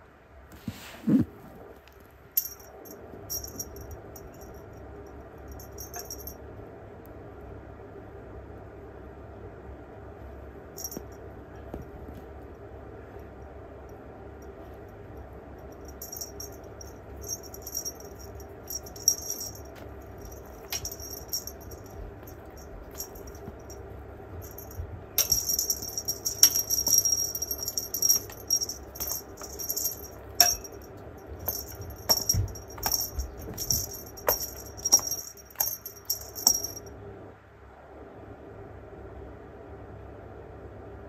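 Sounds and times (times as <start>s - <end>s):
cat toy bell jingling: 2.4s - 4.7s, 5.4s - 6.4s, 10.8s - 11.1s, 15.6s - 36.9s.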